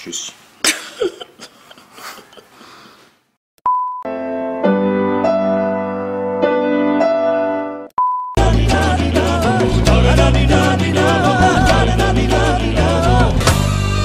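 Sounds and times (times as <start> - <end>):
short beep: 3.6 - 4.1, 8.0 - 8.4
electric piano chords: 4.1 - 7.9
low bass: 8.4 - 14.0.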